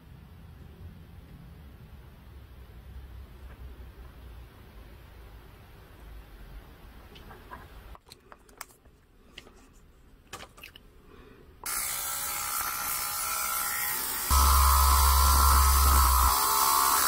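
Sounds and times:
small drill motor hissing: 13.7s - 17.0s.

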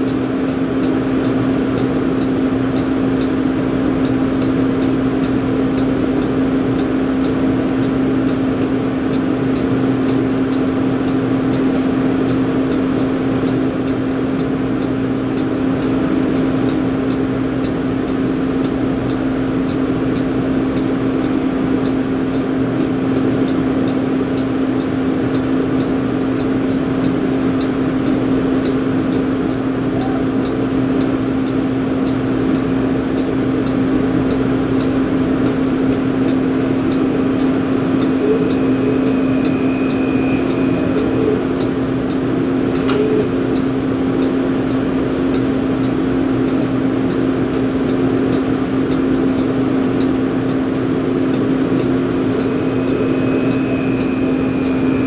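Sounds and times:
drilling rig machinery drone: 0.0s - 55.0s.

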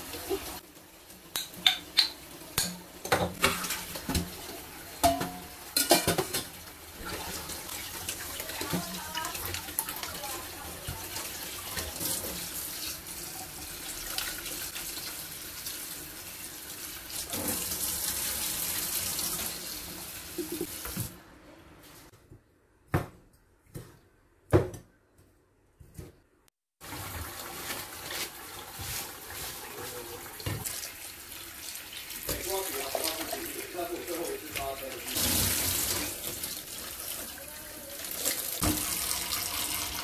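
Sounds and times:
tap water running into sink: 38.0s - 40.0s.

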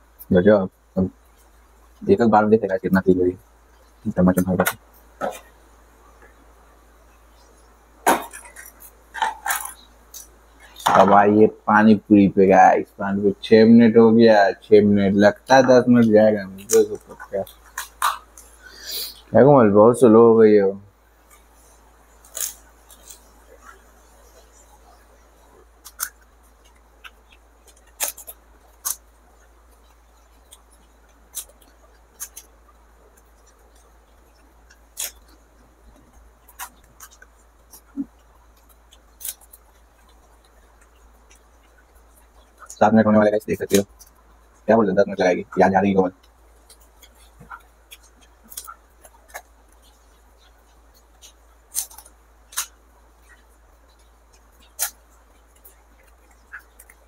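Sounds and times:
crisp shells cracking: 21.2s - 24.7s, 25.6s - 42.8s, 46.1s - 52.8s.

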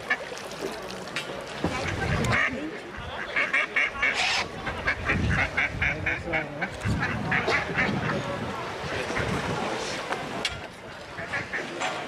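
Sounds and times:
ducks quacking rapidly: 1.8s - 8.2s, 11.2s - 11.8s.

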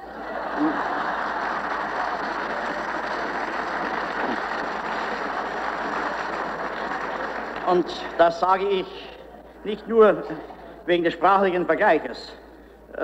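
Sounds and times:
applause on old radio: 0.6s - 8.9s.

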